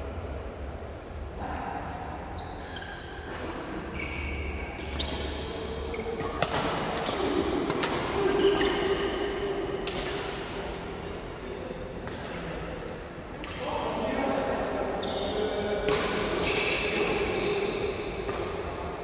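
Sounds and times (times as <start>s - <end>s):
shoes squeaking on court floor: 3.9s - 9.2s
racket hitting shuttlecock: 6.1s - 9.1s, 9.8s - 10.6s, 18.2s - 18.8s.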